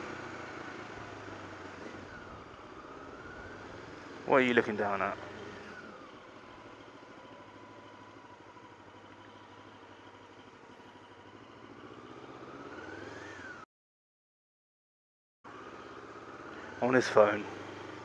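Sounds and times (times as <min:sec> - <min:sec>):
motorcycle engine running: 0:15.5 - 0:18.0.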